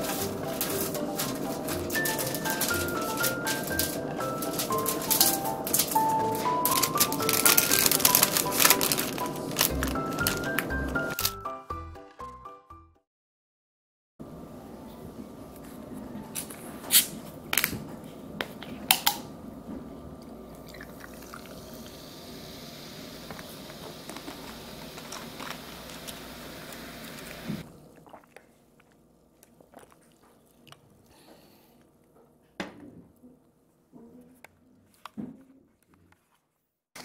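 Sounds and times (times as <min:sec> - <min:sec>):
fizzing carbonated drink: 0:20.6 - 0:28.3.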